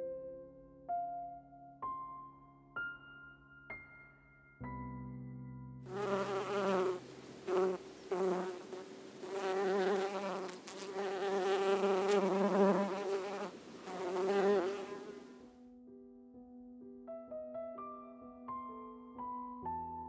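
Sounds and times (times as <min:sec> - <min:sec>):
honey bees buzzing: 0:05.9 - 0:15.4.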